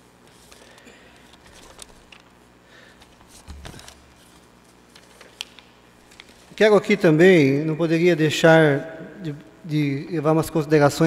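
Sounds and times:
paper rustling: 0.2 - 2.4, 3.0 - 6.6.

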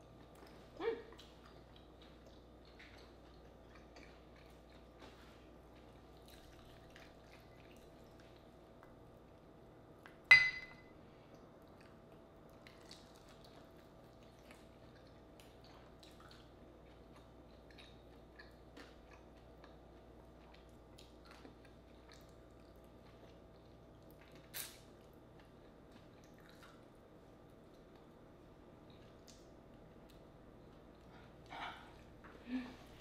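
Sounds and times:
chewing: 0.1 - 10.2, 11.2 - 32.4
glass bowl clink: 10.3 - 10.9.

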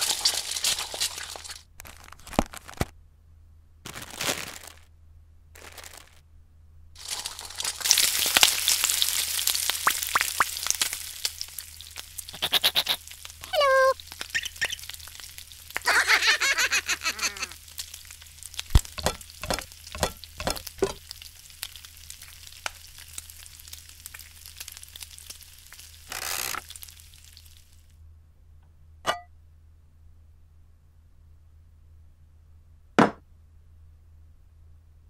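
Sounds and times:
frying pan sizzling: 0.0 - 1.6, 7.0 - 27.9.

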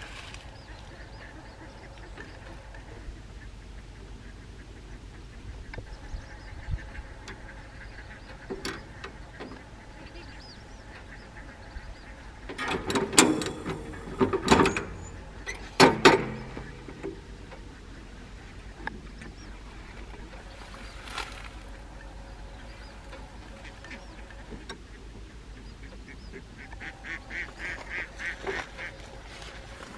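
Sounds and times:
metal clicks and clanking: 8.3 - 9.6, 12.5 - 17.7.

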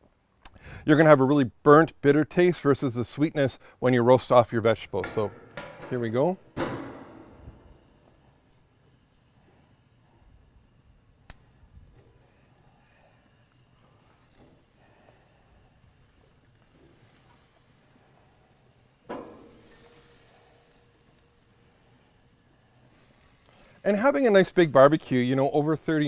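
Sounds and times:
faint sizzling on grill: 0.6 - 26.0
short hiss: 5.2 - 25.8.

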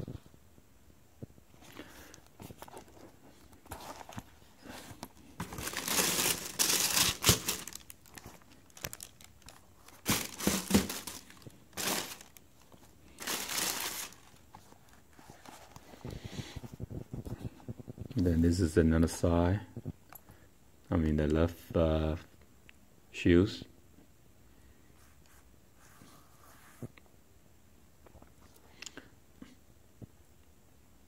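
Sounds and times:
tissue paper crinkling: 3.7 - 15.8.

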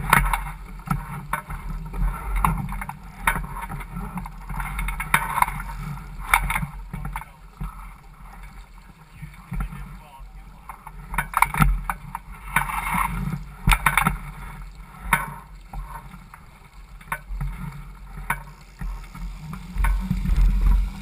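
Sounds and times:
water slapping along a hull: 0.0 - 21.0
low rumble: 17.8 - 21.0.

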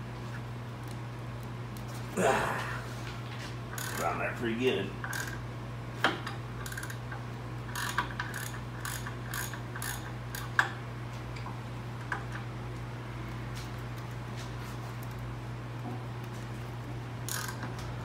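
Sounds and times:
hand ratchet clicking: 3.8 - 4.1, 5.0 - 5.4, 6.6 - 7.0, 7.7 - 10.6, 17.3 - 17.7.

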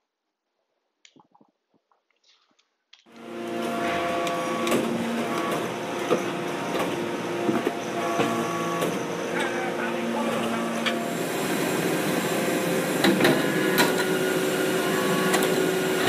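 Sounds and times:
hydraulic press droning: 3.1 - 16.0.

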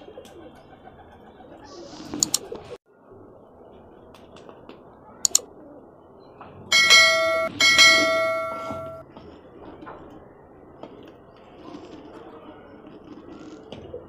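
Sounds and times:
mouse clicks: 2.2 - 2.4
bell ringing: 6.7 - 9.0.

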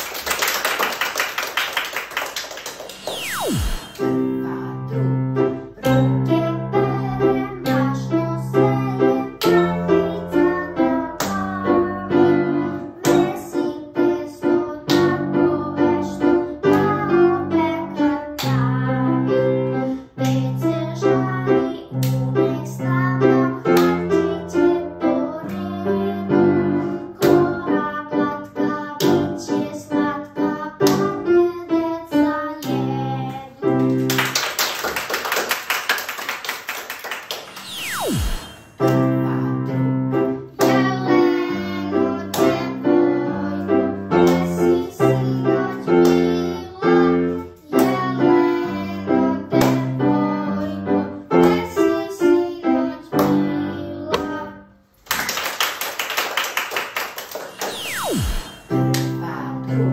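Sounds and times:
people clapping: 0.0 - 4.1, 33.7 - 38.3, 55.0 - 58.3
piano accompaniment: 2.3 - 34.6, 37.0 - 54.6, 57.4 - 59.9
boy singing: 3.8 - 19.6, 20.2 - 33.7, 38.8 - 54.7, 58.5 - 59.9.

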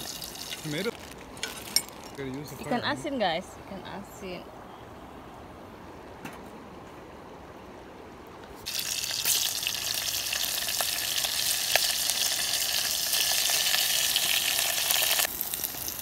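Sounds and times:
fish frying in hot oil: 0.0 - 1.2, 8.6 - 16.0
oil popping: 0.0 - 2.2, 8.4 - 16.0.

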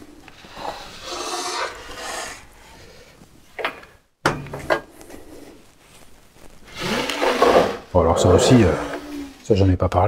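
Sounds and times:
sliding saw carriage rolling: 6.7 - 9.4.

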